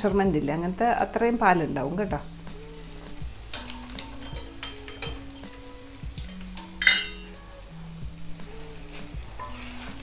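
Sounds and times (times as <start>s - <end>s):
soft background music: 0.0s - 10.0s
utensil clinking against frying pan: 3.5s - 5.6s, 6.2s - 7.3s.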